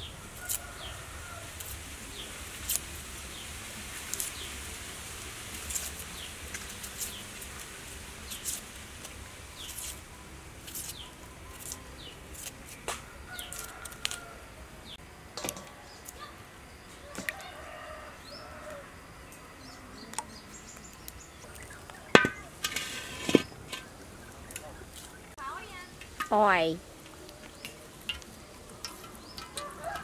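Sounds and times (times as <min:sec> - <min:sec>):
steady hiss: 0:00.0 - 0:19.6.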